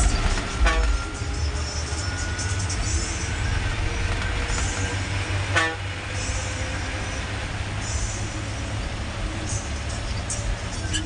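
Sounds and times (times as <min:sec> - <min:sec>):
bus engine and road rumble: 0:00.0 - 0:11.0
horn toot: 0:00.6 - 0:01.1, 0:05.5 - 0:05.9.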